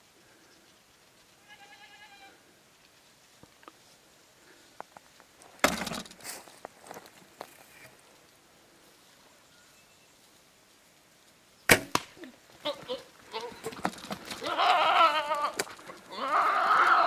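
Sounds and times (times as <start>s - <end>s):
bow shot thwack: 11.7s - 12.3s.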